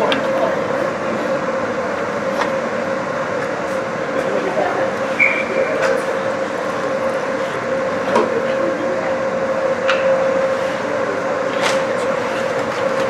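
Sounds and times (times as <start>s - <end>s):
steady machine hum: 0.0s - 13.0s
short high whistle: 5.1s - 5.7s.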